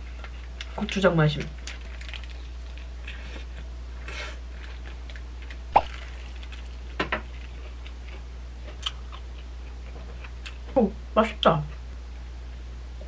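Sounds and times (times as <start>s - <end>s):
steady low hum: 0.0s - 13.0s
eating crackle: 5.8s - 9.8s.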